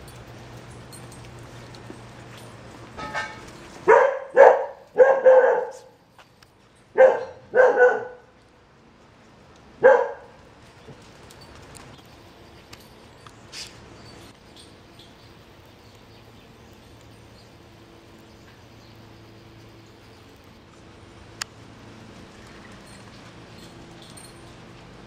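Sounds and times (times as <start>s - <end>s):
dog barking: 3.9s - 6.0s, 7.0s - 8.3s, 9.8s - 10.4s.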